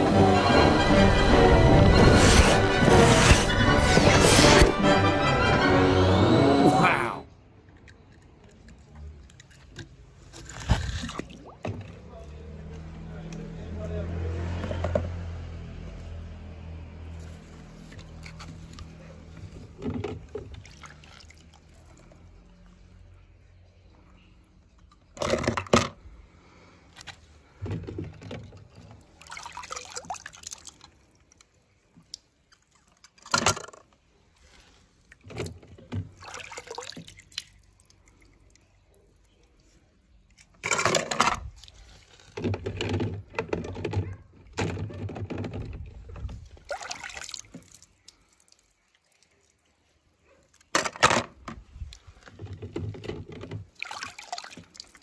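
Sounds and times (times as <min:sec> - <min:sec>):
water splashing in plastic tub: 0:09.2 - 0:13.0, 0:17.6 - 0:22.7, 0:27.1 - 0:55.0.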